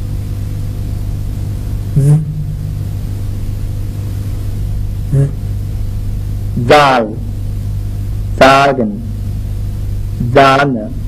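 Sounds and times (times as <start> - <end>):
low electrical hum: 0.0 - 11.0
voice buzzing z sound: 1.9 - 2.9, 5.0 - 5.6, 6.6 - 7.4.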